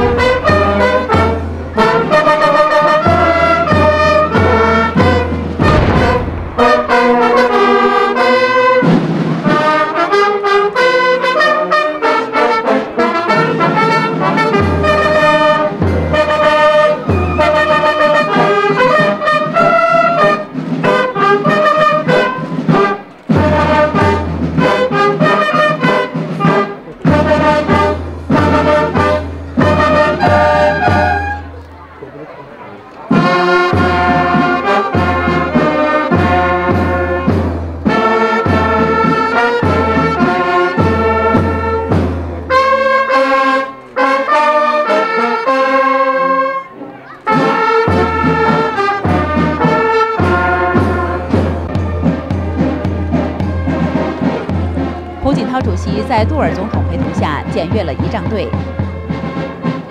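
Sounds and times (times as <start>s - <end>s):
brass band playing: 0.0s - 31.7s, 33.1s - 59.9s
low bass beat: 5.6s - 7.7s.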